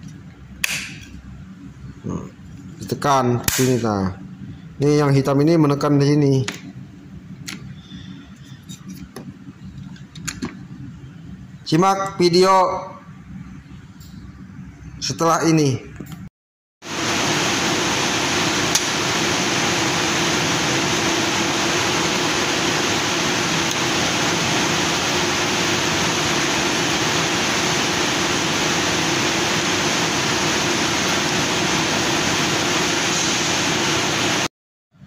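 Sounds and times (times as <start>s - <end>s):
textile machinery running: 16.8s - 34.5s.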